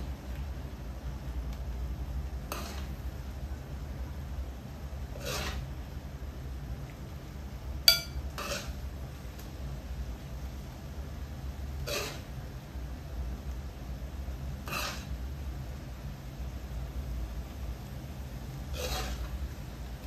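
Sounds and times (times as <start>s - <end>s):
low steady hum: 6.0s - 11.6s
dishware clinking: 7.9s - 8.2s.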